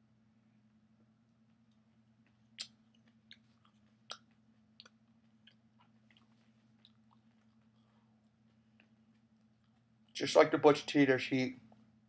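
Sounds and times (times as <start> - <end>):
mouth clicks and crunches: 2.3 - 7.7
person chewing with mouth closed: 2.6 - 7.9.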